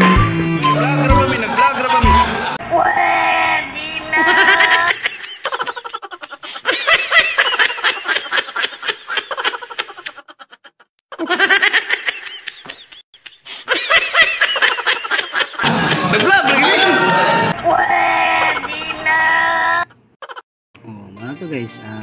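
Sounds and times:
man laughing hard: 4.2 - 17.6.

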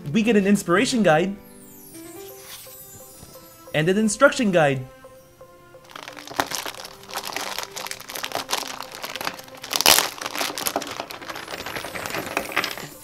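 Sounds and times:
plastic bag crinkling: 5.8 - 13.0.

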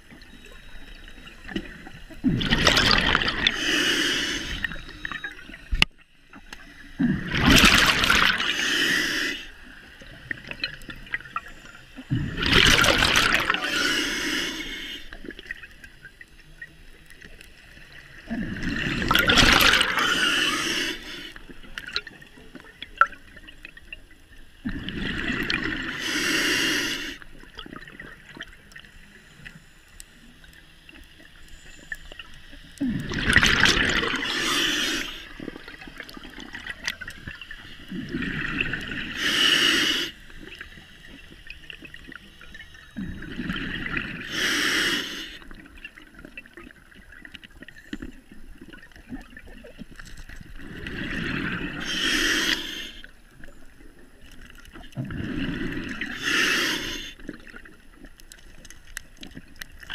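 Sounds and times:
gurgling exhaled bubbles: 0.0 - 5.8, 6.8 - 15.8, 18.0 - 23.8, 24.6 - 28.6, 32.8 - 59.9
quiet water noise: 0.0 - 59.9
regulator breathing hiss: 3.4 - 5.0, 8.4 - 9.6, 13.6 - 15.2, 19.9 - 21.4, 25.9 - 27.3, 34.2 - 35.4, 38.9 - 40.3, 44.2 - 45.4, 51.8 - 53.2, 56.1 - 57.2.

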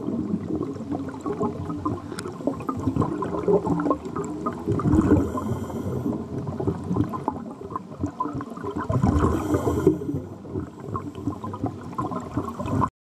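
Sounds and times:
underwater regulator bubbles gurgling: 0.0 - 12.9.

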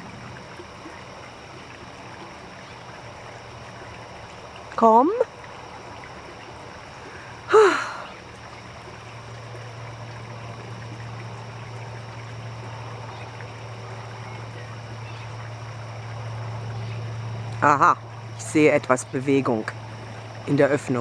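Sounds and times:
steady low hum: 0.0 - 21.0
person sighing: 7.5 - 8.1.

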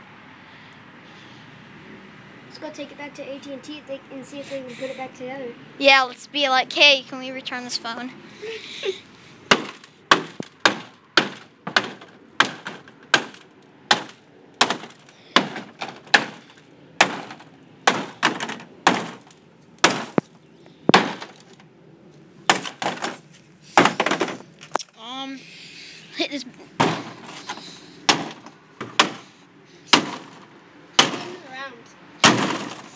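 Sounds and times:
hammer smashing phone: 9.5 - 20.3, 20.9 - 21.6, 22.5 - 23.2, 23.8 - 24.4, 26.8 - 29.3, 29.9 - 30.4, 31.0 - 31.4, 32.2 - 32.9.

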